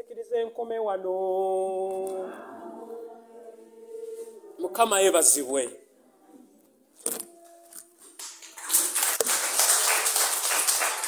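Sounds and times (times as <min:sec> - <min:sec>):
congregation clapping: 0:08.0 - 0:11.0.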